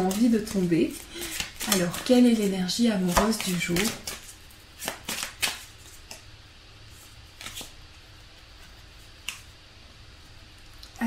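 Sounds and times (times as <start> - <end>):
cards shuffling: 0.0 - 6.2, 6.9 - 9.5.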